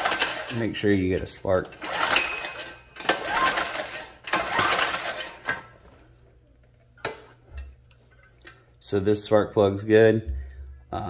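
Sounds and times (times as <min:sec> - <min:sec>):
engine cranking over: 0:00.0 - 0:00.7, 0:01.7 - 0:05.6
recoil starter pulled: 0:00.0 - 0:05.7.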